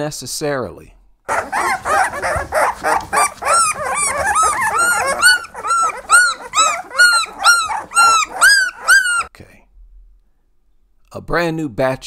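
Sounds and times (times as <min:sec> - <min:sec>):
puppies crying: 0:01.3 - 0:09.3.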